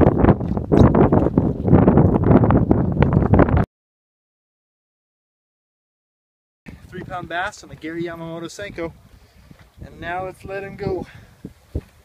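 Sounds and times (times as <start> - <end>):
wind buffeting microphone: 0.0 - 3.7, 6.7 - 12.0.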